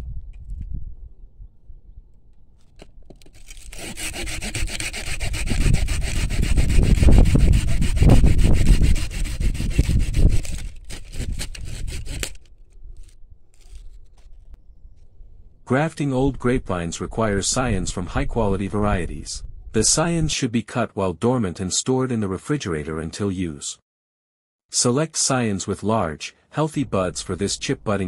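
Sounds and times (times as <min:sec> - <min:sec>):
hand saw cutting wood: 0:03.1 - 0:14.4.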